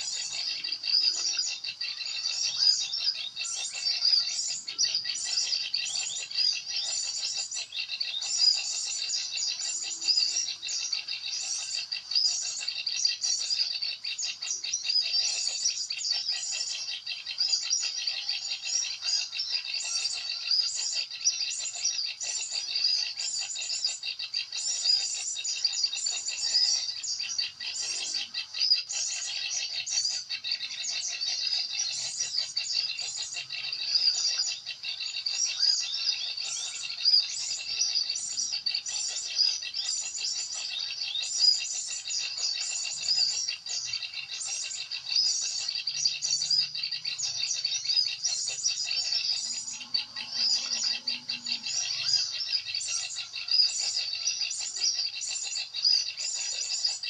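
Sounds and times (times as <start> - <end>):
songbirds chirping: 0.0 - 57.0.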